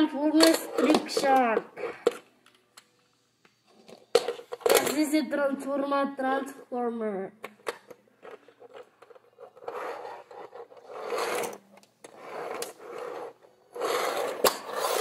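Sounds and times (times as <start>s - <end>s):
toy scraping on wooden floor: 8.3s - 15.0s.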